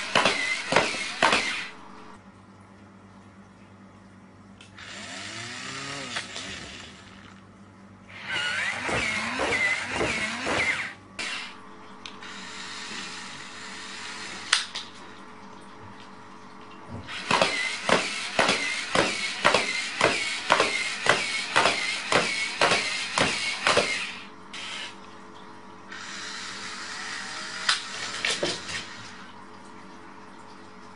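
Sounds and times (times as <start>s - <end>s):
toy robot motor whirring: 4.8s - 7.4s, 8.1s - 11.5s, 17.2s - 25.0s
whir-and-click walking mechanism: 8.1s - 13.2s, 17.1s - 24.8s.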